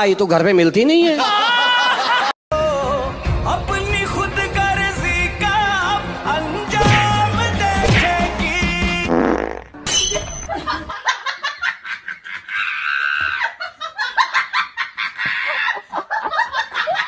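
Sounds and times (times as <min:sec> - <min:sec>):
music: 0:02.5 - 0:09.9.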